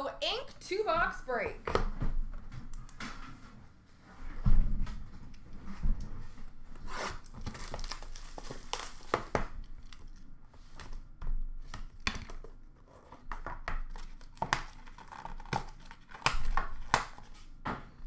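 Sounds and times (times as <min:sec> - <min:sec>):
packaging crinkling and tearing: 0:06.8 - 0:10.3, 0:11.8 - 0:17.4.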